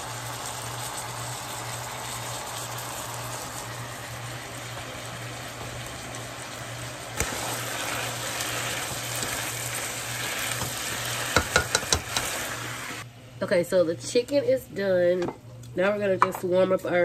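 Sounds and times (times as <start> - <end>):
chicken sizzling in frying pan: 0.0 - 13.0
spatula stirring: 7.2 - 12.7
spatula tapping pan: 10.6 - 12.4.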